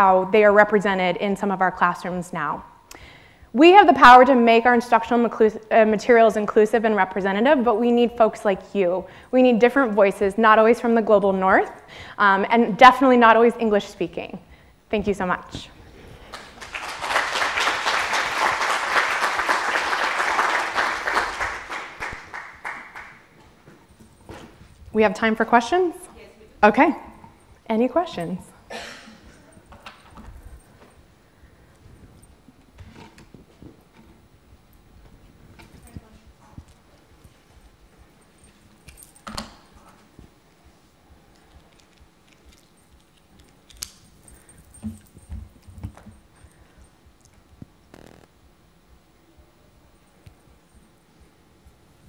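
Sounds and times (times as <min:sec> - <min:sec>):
small audience applauding: 0:16.2 - 0:23.3.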